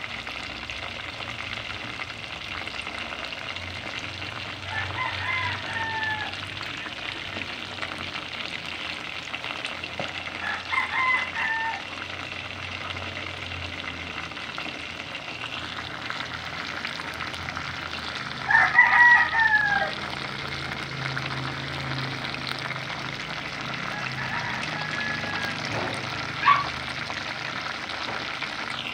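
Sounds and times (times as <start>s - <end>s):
chicken deep-frying in oil: 0.0s - 28.9s
rooster crowing: 4.5s - 6.6s, 10.3s - 12.0s, 18.3s - 20.4s, 23.3s - 26.8s.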